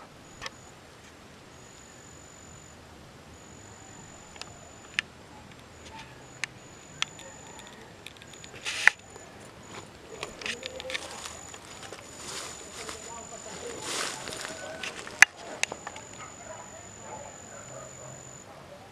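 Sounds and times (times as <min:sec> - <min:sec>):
outdoor background hiss: 0:00.0 - 0:18.9
thin high tone: 0:01.5 - 0:18.4
camera handling clicks: 0:04.3 - 0:09.2
brief rustle: 0:04.4 - 0:16.4.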